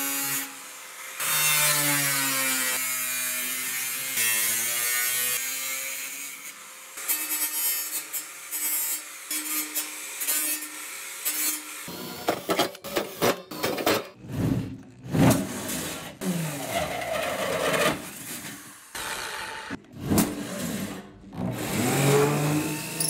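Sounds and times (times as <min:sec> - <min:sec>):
hole saw grinding through metal: 0:15.5 - 0:23.0
power drill boring into steel: 0:21.7 - 0:23.0.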